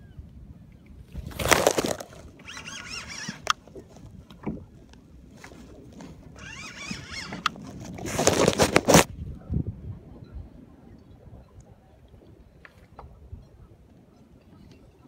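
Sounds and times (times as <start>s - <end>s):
camera handling noise: 1.2s - 3.6s, 6.8s - 9.1s.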